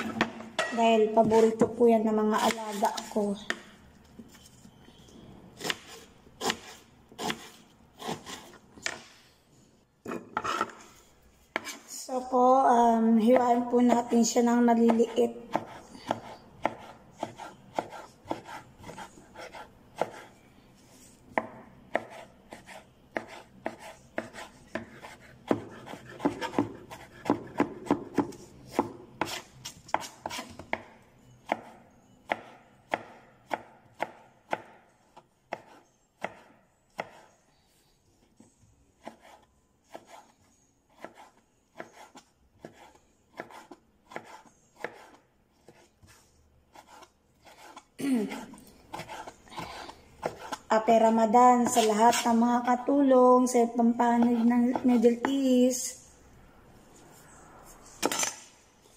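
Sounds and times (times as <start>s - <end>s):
knife chopping on cutting board: 14.9s - 20.3s, 21.4s - 30.9s, 31.5s - 34.8s, 35.5s - 37.3s, 41.0s - 45.9s, 48.9s - 50.6s.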